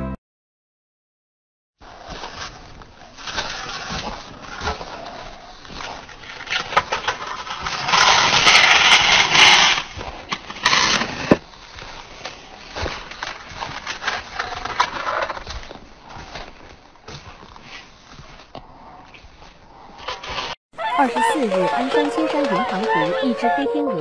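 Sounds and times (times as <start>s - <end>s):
snow shovel scraping path: 1.8s - 11.4s, 20.2s - 23.6s.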